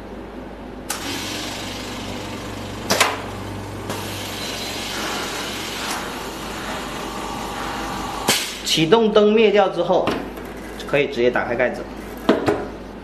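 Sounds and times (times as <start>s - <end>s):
machine low hum: 0.0s - 10.8s
air hissing: 3.9s - 8.7s.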